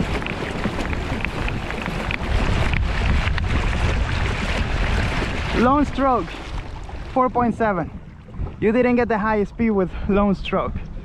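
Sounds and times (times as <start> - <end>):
water splashing along kayak hull: 0.0 - 11.0
wind buffeting microphone: 0.0 - 11.0.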